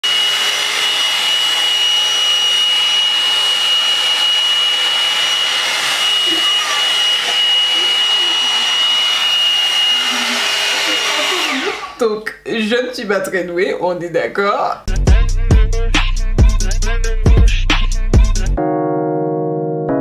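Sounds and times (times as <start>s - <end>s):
hot-air brush motor whine: 0.0s - 12.0s.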